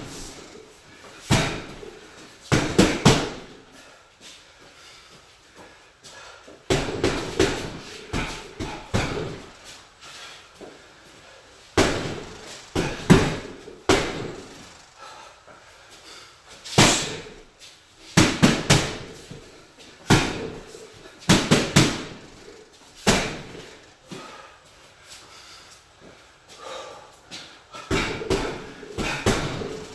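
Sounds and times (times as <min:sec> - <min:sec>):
boxing gloves punching heavy bag: 0:01.2 - 0:03.6, 0:06.7 - 0:09.7, 0:11.8 - 0:15.2, 0:16.7 - 0:24.4, 0:27.7 - 0:29.9.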